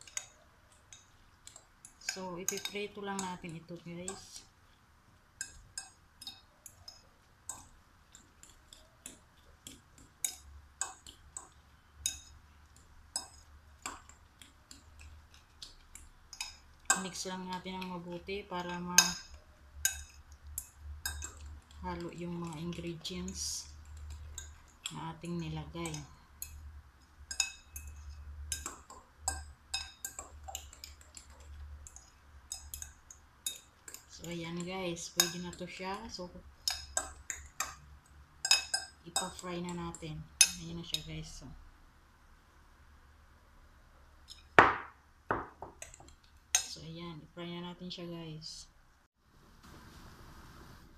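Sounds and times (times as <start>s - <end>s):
fork clinking against glass bowl: 18.6s - 21.5s, 27.3s - 34.1s, 38.4s - 39.5s.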